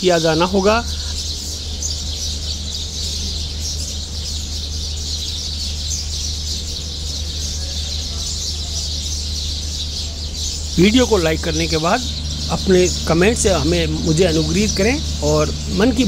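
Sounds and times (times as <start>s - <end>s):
small birds chirping: 0.0s - 16.0s
low hum: 10.5s - 16.0s.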